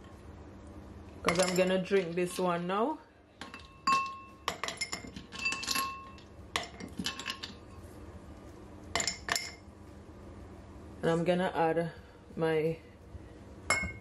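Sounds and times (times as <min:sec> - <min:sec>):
ice cubes clinking in glass jar: 0:03.9 - 0:07.6.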